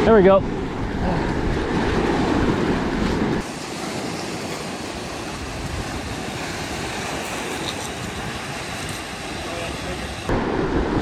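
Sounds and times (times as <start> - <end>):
surf washing over rocks: 0.0 - 11.0
wind buffeting microphone: 0.0 - 11.0.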